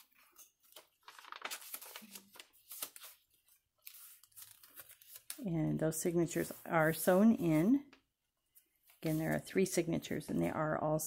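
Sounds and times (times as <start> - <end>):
paper pages rustling: 0.0 - 5.4.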